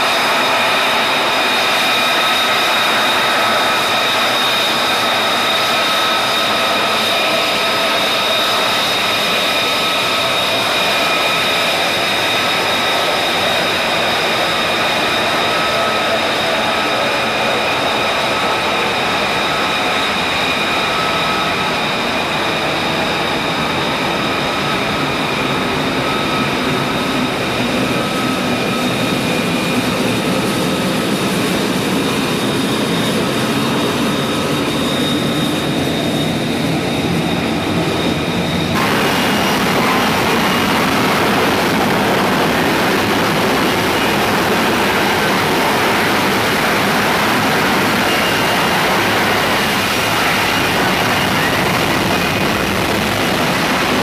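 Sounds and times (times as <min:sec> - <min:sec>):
jet engine rushing with whine: 0:00.0 - 0:54.0.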